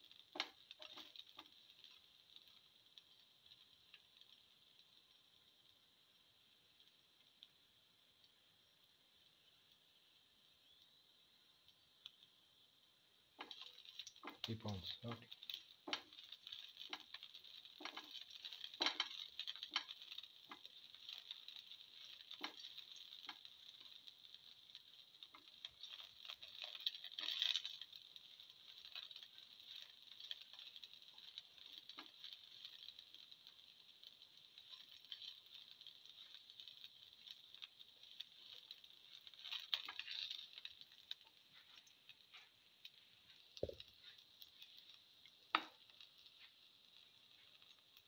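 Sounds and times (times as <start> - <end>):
food sizzling in oil: 0.0 - 48.0
spatula scraping a pan: 15.4 - 24.0, 25.3 - 28.0, 28.6 - 32.9, 34.4 - 42.6.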